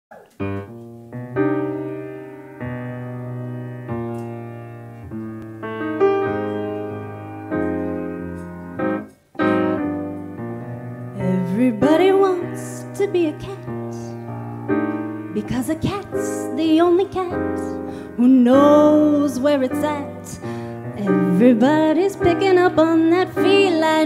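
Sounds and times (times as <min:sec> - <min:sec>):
piano chords ringing: 0:00.1 - 0:24.0.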